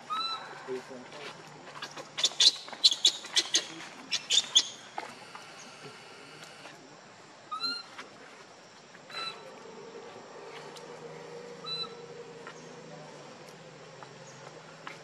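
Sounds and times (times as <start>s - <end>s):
baby monkey calls: 2.2s - 4.8s, 11.6s - 12.0s
baby monkey squealing: 2.2s - 4.8s.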